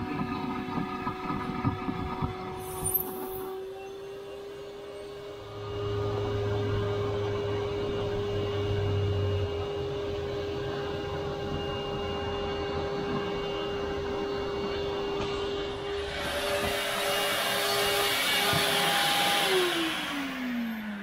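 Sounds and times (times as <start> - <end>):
shop vac whining: 0.0 - 21.0.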